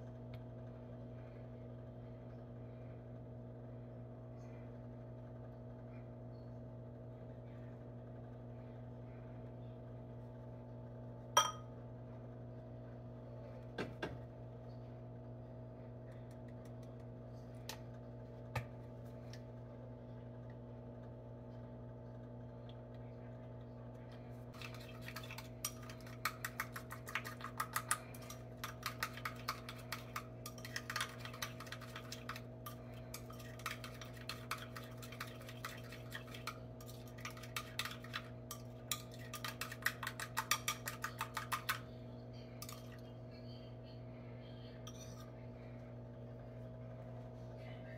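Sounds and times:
steady low hum: 0:00.0 - 0:47.9
spoon clinking against glass bowl: 0:11.4 - 0:11.7.

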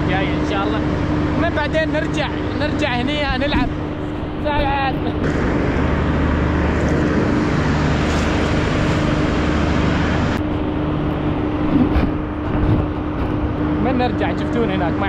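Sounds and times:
constant low hum: 0:00.0 - 0:15.0
vehicle engine and traffic: 0:00.0 - 0:15.0.

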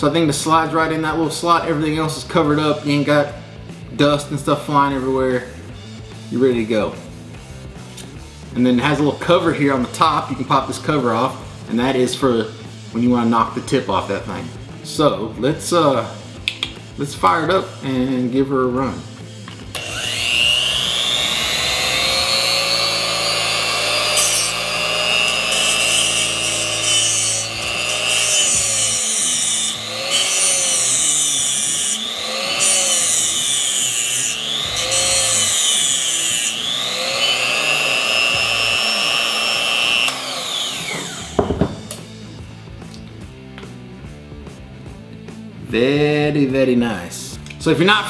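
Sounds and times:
hissing grinding: 0:19.2 - 0:42.3
grinder motor whining: 0:19.3 - 0:42.2.

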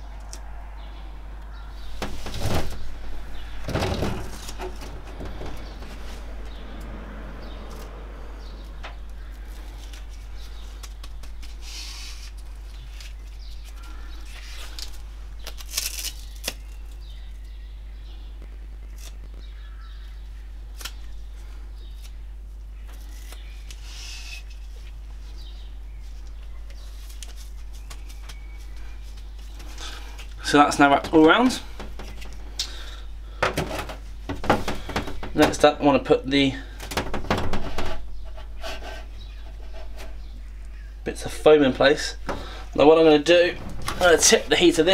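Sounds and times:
steady low hum: 0:00.0 - 0:44.9
foam strip rustling and crinkling: 0:09.2 - 0:17.5, 0:26.0 - 0:33.0, 0:41.8 - 0:44.9.

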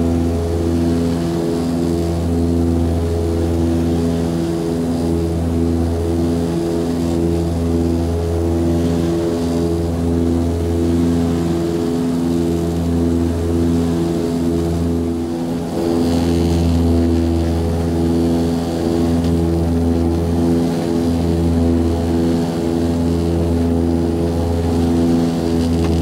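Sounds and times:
turboprop cabin drone with pulsing throb: 0:00.0 - 0:26.0.

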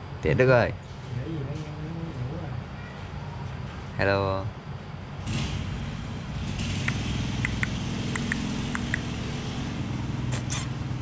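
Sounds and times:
engine humming: 0:05.1 - 0:11.0
faint high ticks: 0:06.9 - 0:09.1.

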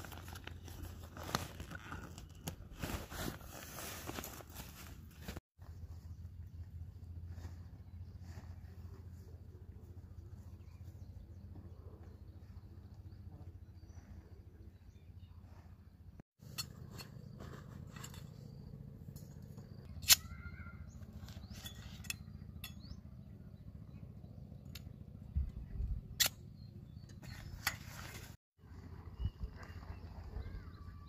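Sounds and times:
low outdoor rumble: 0:00.0 - 0:31.0
metal tent poles clinking: 0:21.4 - 0:22.9.

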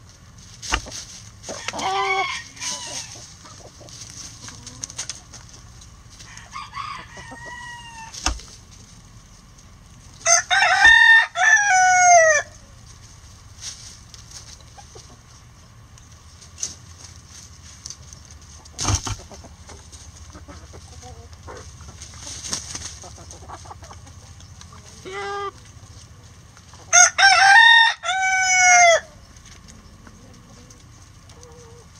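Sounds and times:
murmur of chickens: 0:00.0 - 0:31.9
rooster crowing: 0:01.5 - 0:03.2, 0:06.2 - 0:08.2, 0:10.2 - 0:12.6, 0:26.9 - 0:29.2.

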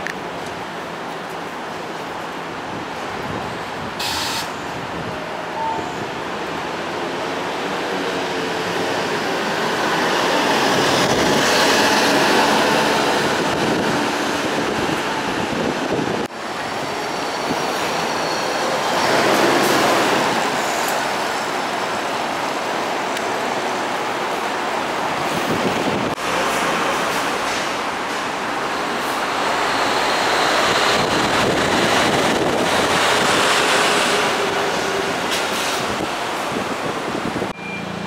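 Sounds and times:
bus engines running: 0:00.0 - 0:38.0
bus passing: 0:06.4 - 0:38.0.

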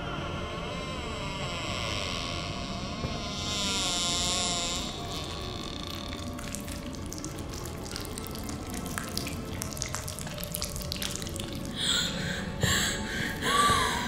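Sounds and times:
water dripping and splashing: 0:04.7 - 0:12.6.

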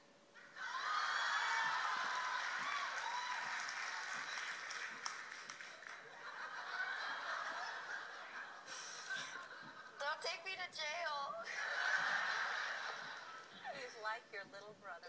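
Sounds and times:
audience laughing: 0:00.4 - 0:03.0, 0:05.8 - 0:10.0, 0:11.4 - 0:14.0
people clapping: 0:00.6 - 0:08.4.

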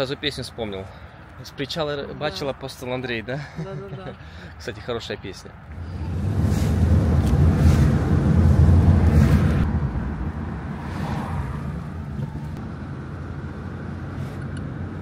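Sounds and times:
air rushing past: 0:05.7 - 0:12.8
car rumble from inside cabin: 0:05.7 - 0:15.0.

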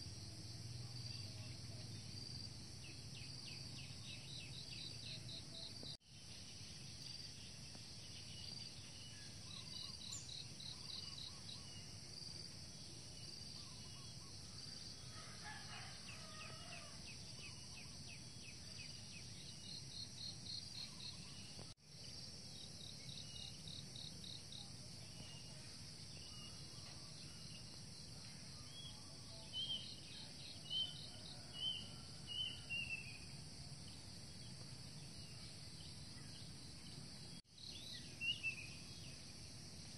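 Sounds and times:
insects chirping: 0:00.0 - 0:39.9
low steady hiss: 0:00.0 - 0:39.9.

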